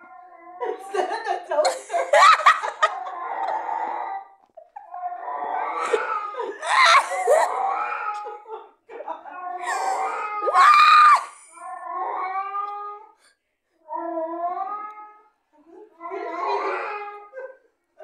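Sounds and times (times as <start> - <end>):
people laughing and shrieking: 0.9 - 3.6, 5.8 - 7.6.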